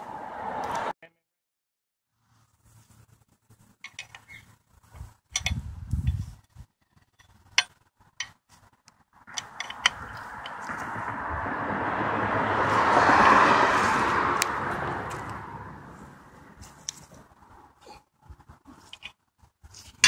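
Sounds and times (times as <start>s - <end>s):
vehicle approaching: 0.0s - 0.9s, 8.7s - 18.7s.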